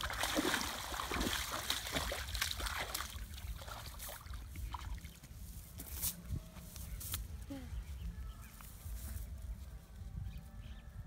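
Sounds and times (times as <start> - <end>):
water splashing and trickling: 0.0 - 5.8.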